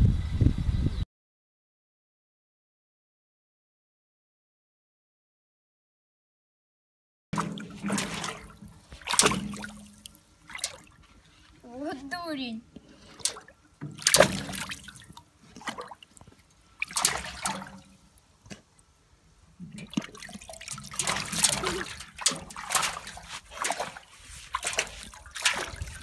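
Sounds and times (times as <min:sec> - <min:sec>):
water splashing in a bathtub: 0:07.4 - 0:11.3, 0:12.9 - 0:26.0.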